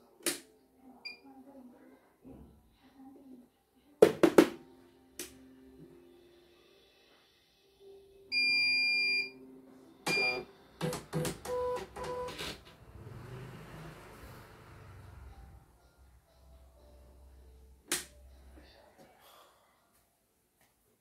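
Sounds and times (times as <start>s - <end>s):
machine beeps: 8.3s - 9.4s, 10.1s - 12.4s.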